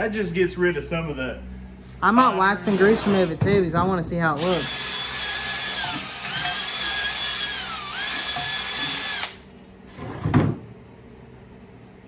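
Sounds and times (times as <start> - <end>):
electric drill whining: 4.3 - 9.4.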